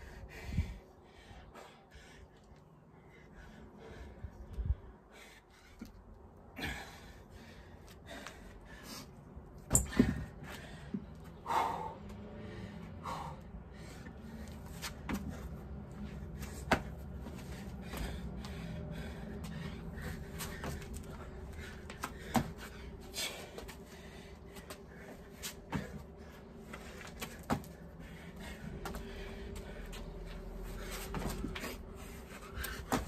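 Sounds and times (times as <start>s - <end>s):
hard breathing: 0.0s - 33.0s
light knocks and scuffs: 28.8s - 31.8s.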